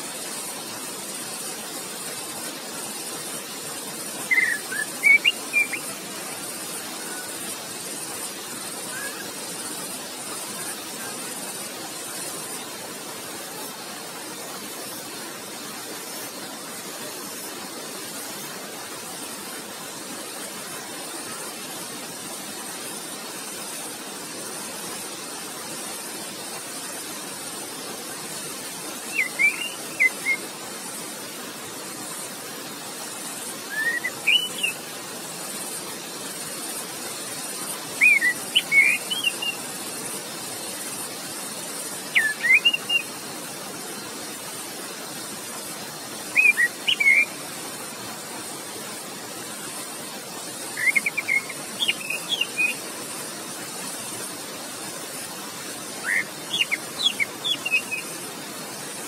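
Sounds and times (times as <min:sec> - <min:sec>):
running water rushing: 0:00.0 - 0:59.0
thrush singing whistled phrases: 0:04.2 - 0:05.9, 0:29.1 - 0:30.4, 0:33.7 - 0:34.8, 0:38.0 - 0:39.6, 0:42.1 - 0:43.1, 0:46.3 - 0:47.4, 0:50.7 - 0:52.8, 0:56.0 - 0:58.1.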